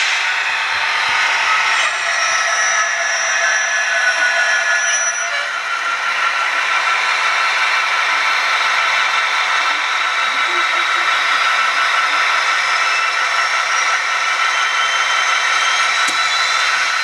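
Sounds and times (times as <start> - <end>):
high whistle: 1.1 - 5.7, 12.5 - 17.0
model diesel engine drone from speaker: 7.9 - 13.3.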